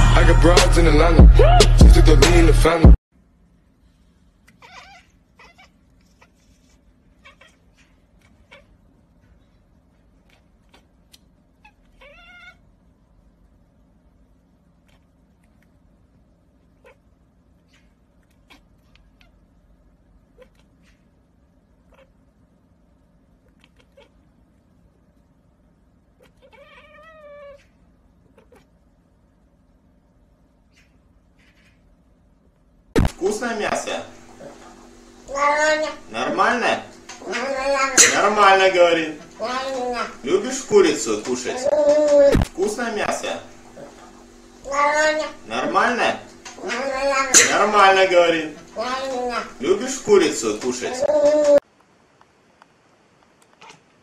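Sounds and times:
loud intro music: 0:00.0 - 0:03.0
cat meowing: 0:04.5 - 0:06.4, 0:07.2 - 0:08.7, 0:11.6 - 0:12.6, 0:26.2 - 0:27.7
cat meowing faintly: 0:07.2 - 0:08.7, 0:26.2 - 0:27.7, 0:53.6 - 0:53.9.

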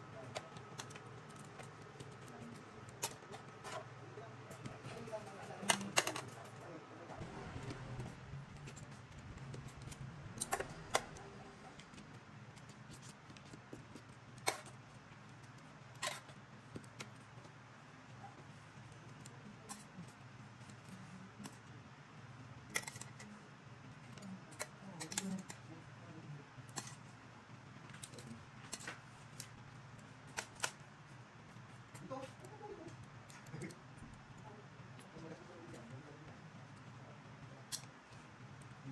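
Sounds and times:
low steady hum: 0:00.0 - 0:38.9.

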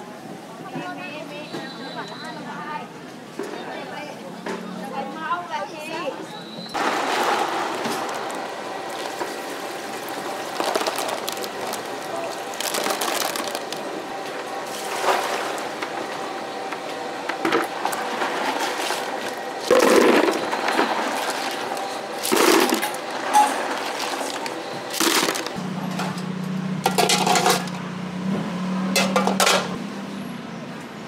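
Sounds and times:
water sloshing and splashing: 0:06.8 - 0:14.0, 0:14.6 - 0:15.8, 0:17.7 - 0:25.6.

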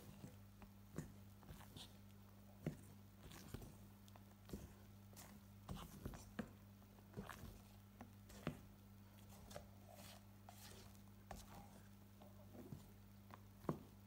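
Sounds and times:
low steady hum: 0:00.0 - 0:14.0
spatula tapping and scraping bowl: 0:04.4 - 0:11.8.

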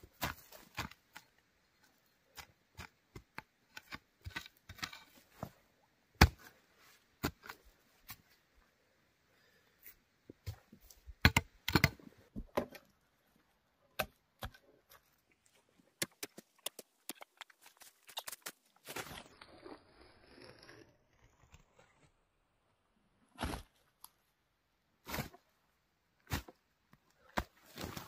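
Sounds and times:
hoe striking and scraping soil: 0:02.3 - 0:05.6, 0:25.0 - 0:25.4.

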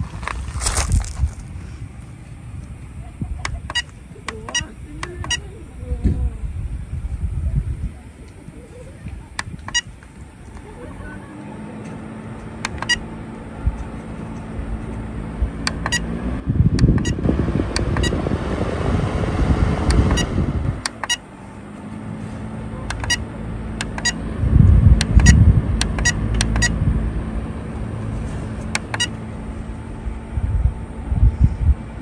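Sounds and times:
fan airflow rush: 0:00.0 - 0:32.0
fan motor hum: 0:00.0 - 0:32.0
button beeps: 0:03.4 - 0:05.5, 0:09.4 - 0:09.9, 0:12.6 - 0:13.1, 0:15.7 - 0:16.1, 0:16.8 - 0:17.2, 0:17.8 - 0:18.2, 0:19.9 - 0:21.2, 0:22.9 - 0:24.2, 0:25.0 - 0:26.8, 0:28.8 - 0:29.2.

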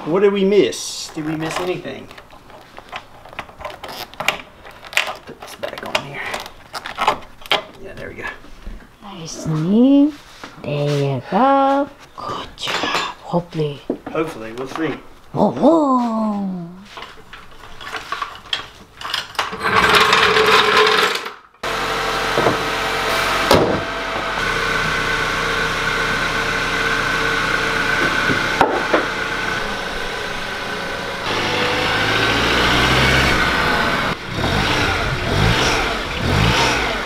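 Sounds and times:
car engine running: 0:21.6 - 0:37.0.

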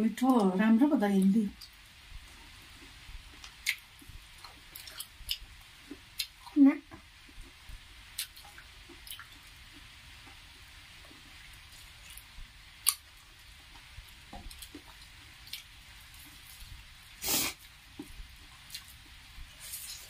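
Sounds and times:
wet chewing: 0:02.3 - 0:06.6, 0:08.2 - 0:10.4.

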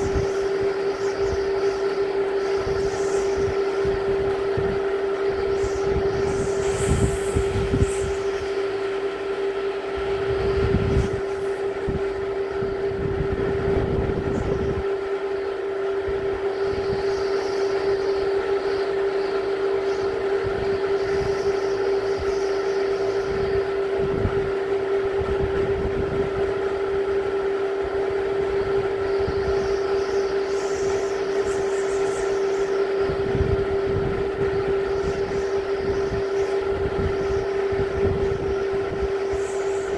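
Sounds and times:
steady tone: 0:00.0 - 0:39.9
wind buffeting microphone: 0:00.0 - 0:39.9
wind gusting: 0:00.0 - 0:39.9.

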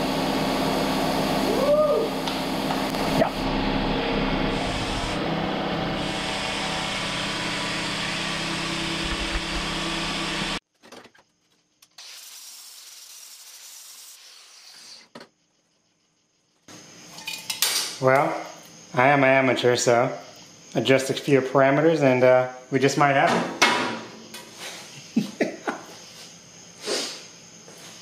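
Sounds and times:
low hum: 0:01.5 - 0:10.6
plasma cutter torch hissing: 0:12.0 - 0:15.0.

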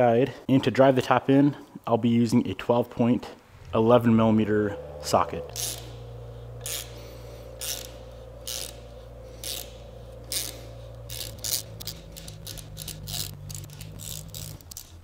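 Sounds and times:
hand ratchet clicking: 0:05.6 - 0:06.0, 0:06.6 - 0:15.0.

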